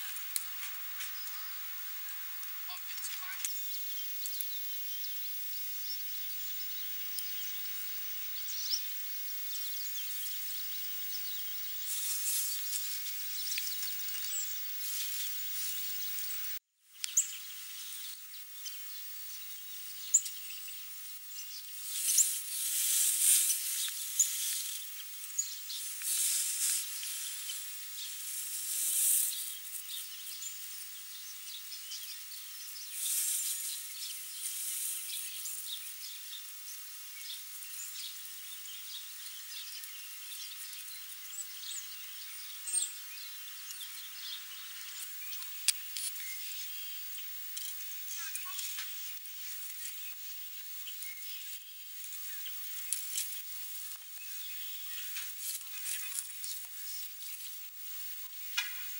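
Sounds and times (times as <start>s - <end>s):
thin outdoor hiss: 0.0s - 58.9s
scratchy rustling on bark: 11.8s - 15.9s, 21.8s - 30.0s, 32.9s - 35.7s.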